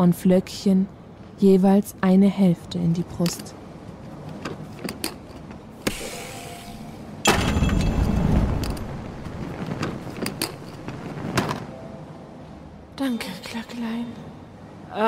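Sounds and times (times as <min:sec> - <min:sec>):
loud rush with deep rumble: 0:07.4 - 0:11.7.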